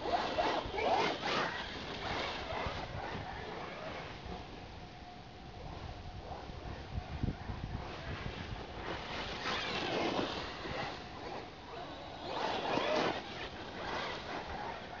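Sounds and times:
rc car motor whine: 0.0s - 4.6s, 5.6s - 15.0s.

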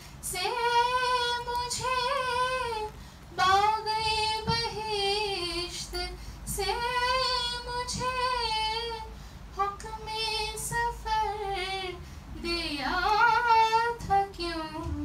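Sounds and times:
woman singing: 0.2s - 15.0s
singer breathing: 3.0s - 3.3s, 6.2s - 6.5s, 9.1s - 9.5s, 12.0s - 12.4s.

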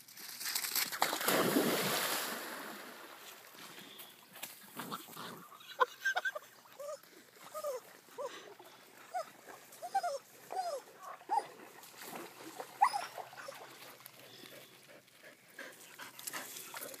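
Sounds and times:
dog yipping: 12.8s - 13.6s.

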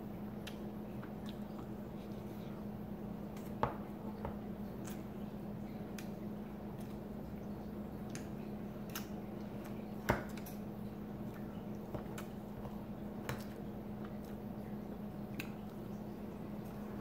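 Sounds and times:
steady low hum: 0.0s - 17.0s
mouth sounds of eating: 0.3s - 3.5s.

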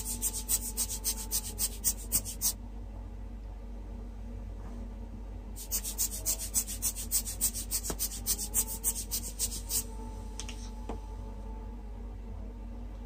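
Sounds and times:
pen scribbling on glossy paper: 0.0s - 2.6s, 5.6s - 9.9s.

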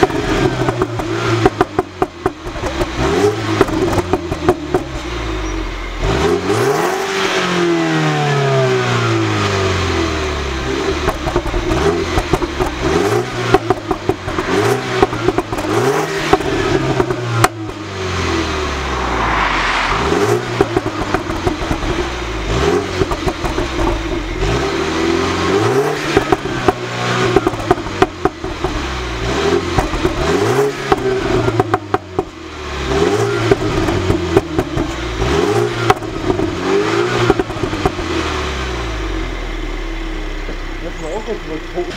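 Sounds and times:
car engine revving: 0.0s - 41.9s
exhaust cracks: 11.0s - 25.0s, 25.6s - 32.4s, 33.2s - 38.4s.

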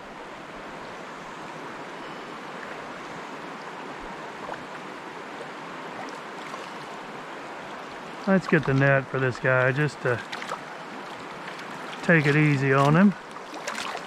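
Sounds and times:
stream flowing: 0.0s - 14.0s
fish splashing: 10.2s - 14.0s.

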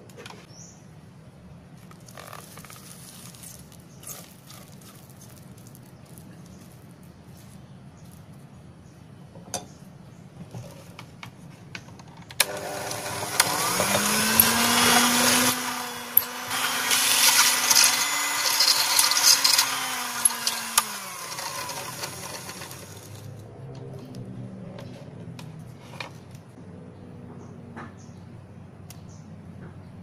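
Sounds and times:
electric hand mixer whining: 12.4s - 23.3s.

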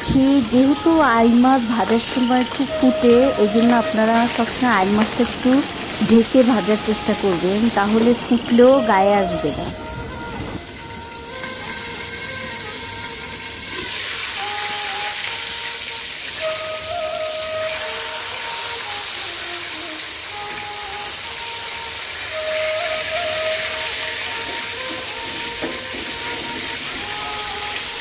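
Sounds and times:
fish sizzling in hot oil: 0.0s - 9.1s, 9.8s - 28.0s
background music: 0.0s - 19.1s.

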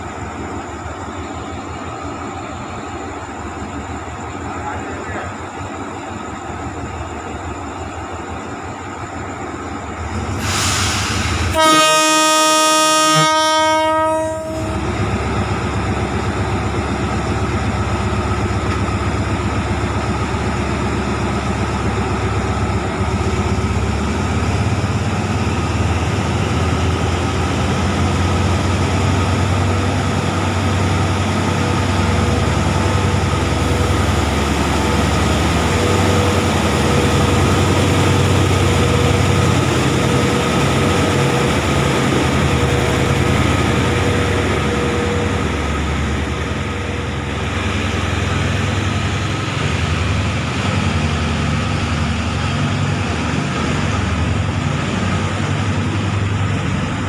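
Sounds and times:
locomotive horn blast: 11.5s - 14.8s.

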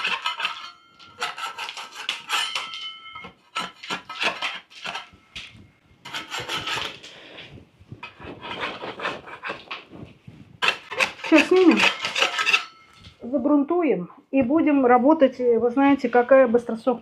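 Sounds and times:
putty knife scraping plaster: 0.0s - 5.2s, 6.0s - 7.2s, 8.0s - 9.8s, 10.6s - 12.8s.

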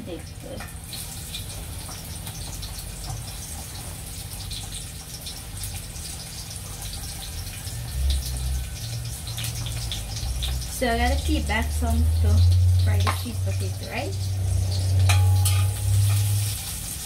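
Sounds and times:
peas sizzling in oil: 0.0s - 17.0s
low constant rumble: 7.1s - 17.0s.

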